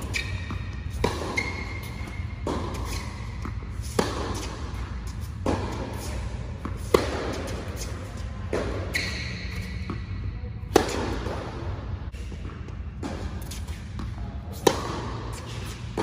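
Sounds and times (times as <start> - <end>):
tennis racket strikes: 0.0 - 10.0, 13.0 - 16.0
steady low hum: 0.0 - 16.0
tennis ball bounces: 0.0 - 16.0.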